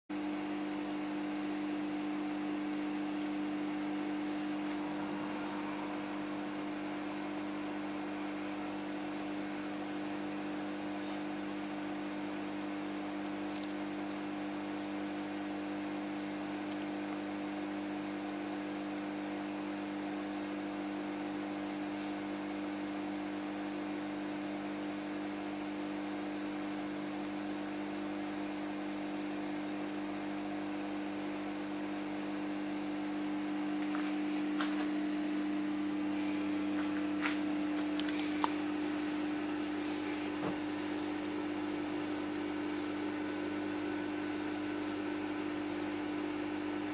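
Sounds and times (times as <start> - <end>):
electrical hum: 0.1 - 46.9.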